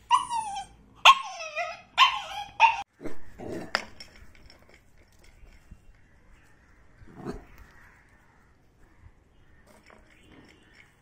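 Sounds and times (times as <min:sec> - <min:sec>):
puppy whining and yipping: 0:00.0 - 0:02.9.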